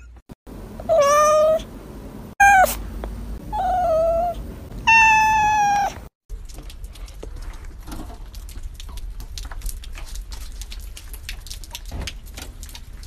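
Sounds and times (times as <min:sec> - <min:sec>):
cat meowing: 0:00.9 - 0:01.6, 0:02.4 - 0:02.8, 0:03.5 - 0:06.0.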